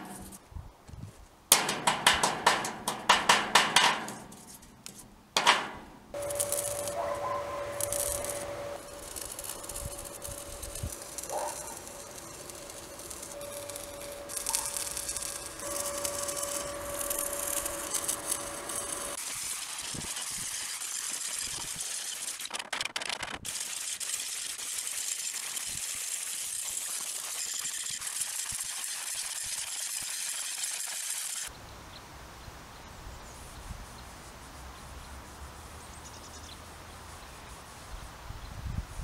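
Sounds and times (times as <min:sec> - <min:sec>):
arc welding crackling hiss: 0:01.5 - 0:31.5
steady tone: 0:05.7 - 0:19.2.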